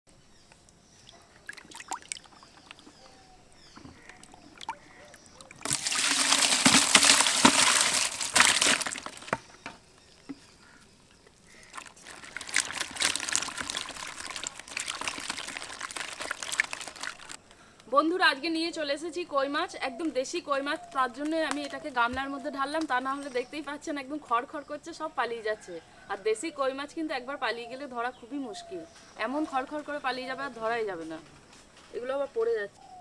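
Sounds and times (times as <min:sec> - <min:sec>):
water pouring from a bucket: 0:04.1 - 0:09.4, 0:11.6 - 0:17.4
fish flapping against bamboo: 0:05.6 - 0:09.6, 0:11.5 - 0:17.4.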